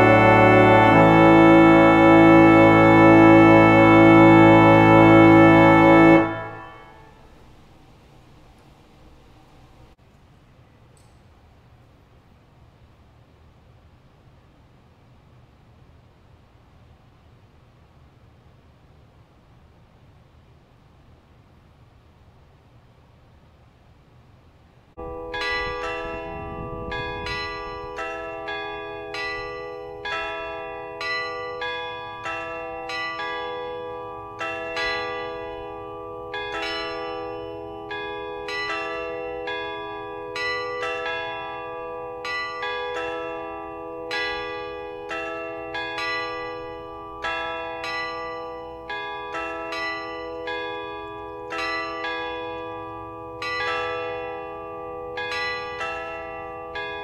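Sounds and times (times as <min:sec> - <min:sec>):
church bells ringing: 0:00.0 - 0:07.5, 0:25.0 - 0:57.0.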